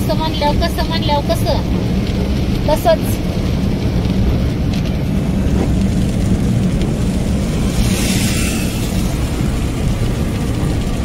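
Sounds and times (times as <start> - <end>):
car engine and tyres rumbling: 0.0 - 11.0
hiss: 7.4 - 10.1.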